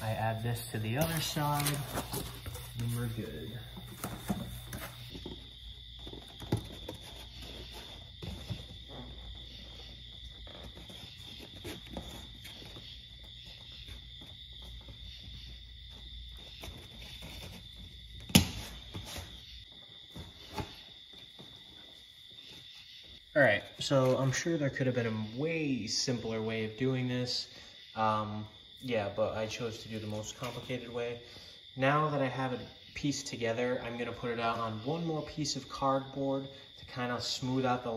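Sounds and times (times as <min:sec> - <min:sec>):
cardboard and tape rustling: 0:00.0 - 0:23.2.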